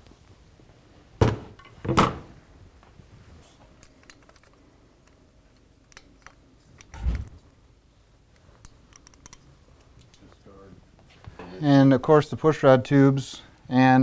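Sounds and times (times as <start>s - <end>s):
sharp metal clicks: 8.6s - 10.2s.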